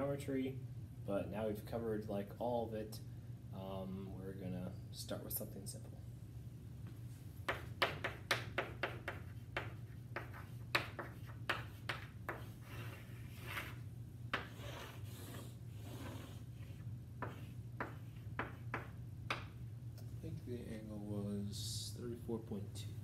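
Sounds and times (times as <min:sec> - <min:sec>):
low steady hum: 0:00.0 - 0:23.0
chalk scratching on chalkboard: 0:07.6 - 0:19.0.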